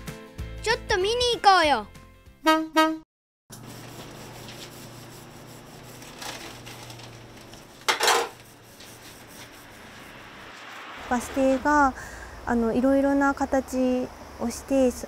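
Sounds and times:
painting tools scraping on boards: 3.7s - 10.6s.

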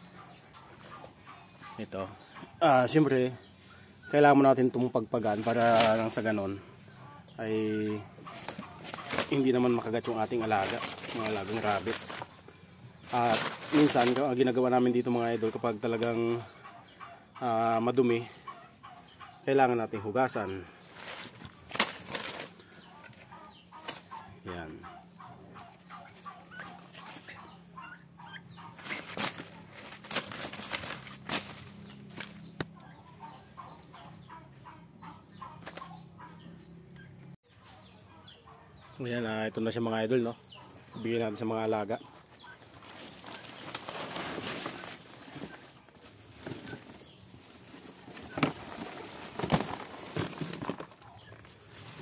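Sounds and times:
leafy branches rustling: 0.0s - 18.8s, 19.7s - 24.6s, 28.4s - 34.3s, 40.5s - 52.0s
poultry clucking: 0.0s - 52.0s.

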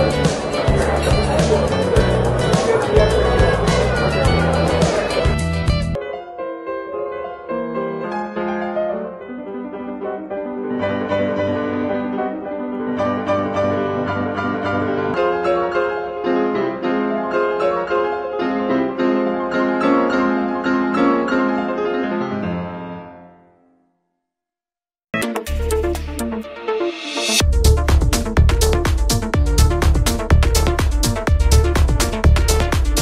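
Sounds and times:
piano music: 0.0s - 23.8s, 25.1s - 33.0s.

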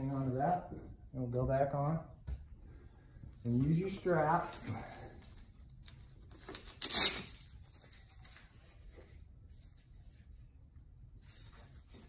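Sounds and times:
strap ripping open: 6.2s - 7.7s.

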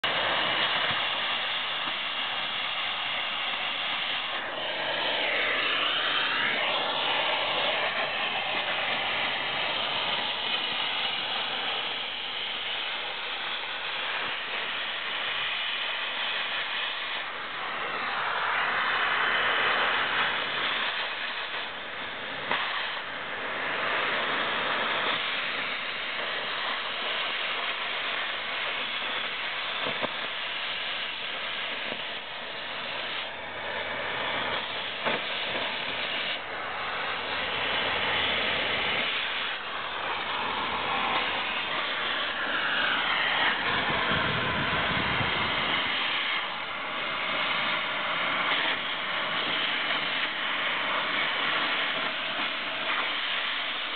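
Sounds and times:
cutting torch hissing: 0.0s - 53.9s.

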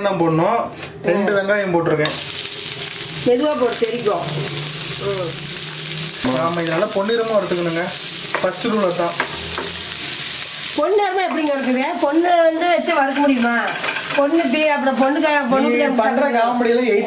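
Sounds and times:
onions sizzling in hot oil: 2.0s - 17.0s
spatula stirring: 5.8s - 14.6s.

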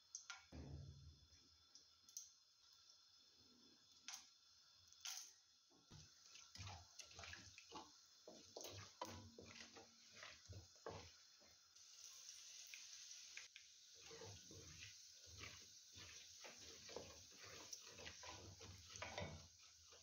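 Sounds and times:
spices crackling in hot oil: 1.4s - 20.0s
wooden spoon scraping: 8.3s - 11.6s, 14.0s - 20.0s.

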